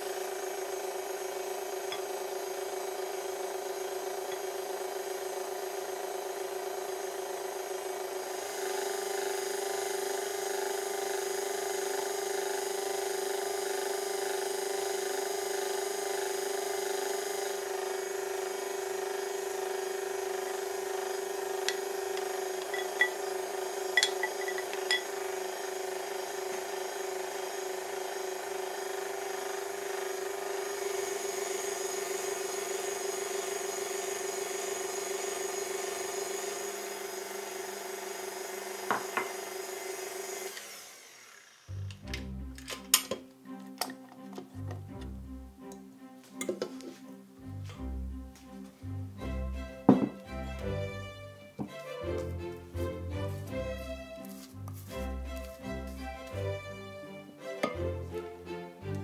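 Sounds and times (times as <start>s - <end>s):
whisk beating egg whites: 0.0s - 40.6s
stand mixer motor whining: 0.0s - 45.8s, 49.2s - 59.0s.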